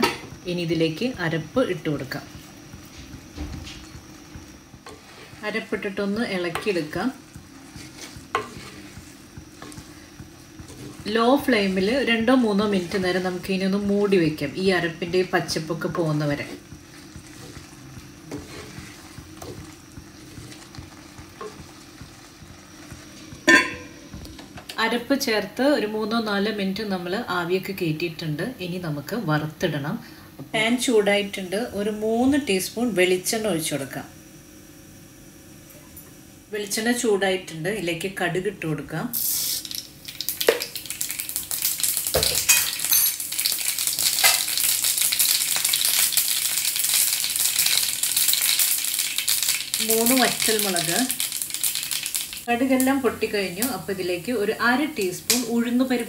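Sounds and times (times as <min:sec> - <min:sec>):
seeds sizzling in hot oil: 0:00.0 - 0:56.0
wooden spoon scraping clay pot: 0:02.1 - 0:24.0.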